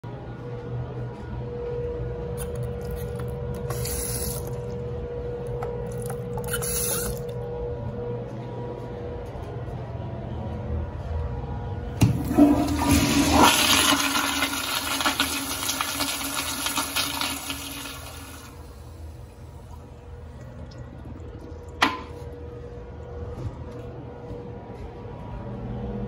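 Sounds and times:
toilet flushing: 12.0s - 22.4s.

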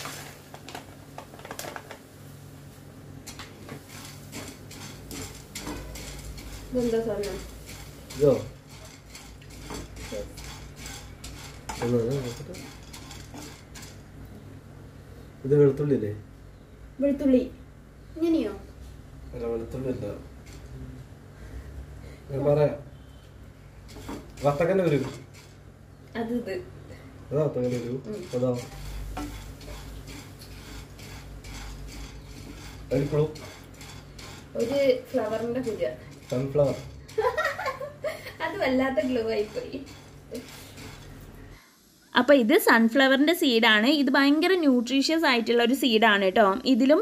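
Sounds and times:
spatula scraping seeds in pan: 3.2s - 14.2s, 20.4s - 20.7s, 23.8s - 25.7s, 27.5s - 37.7s, 38.5s - 41.5s.

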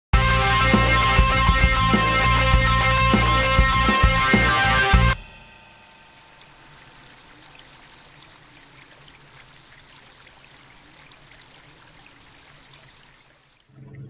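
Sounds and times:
water drips: 5.6s - 14.0s
water trickling and lapping: 5.6s - 14.0s.

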